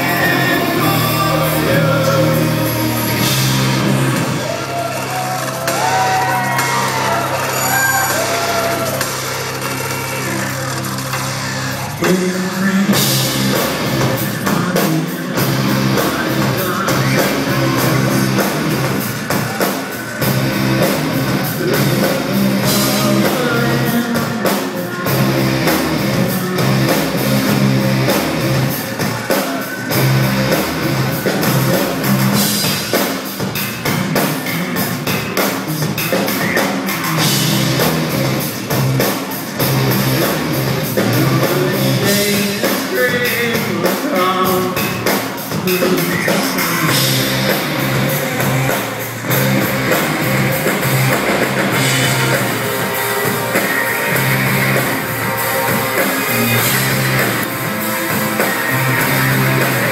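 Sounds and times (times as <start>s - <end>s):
person singing: 0.0s - 4.7s, 11.8s - 32.7s, 40.8s - 59.9s
bass line: 0.0s - 59.9s
drum kit: 0.0s - 59.9s
electric guitar: 0.0s - 59.9s.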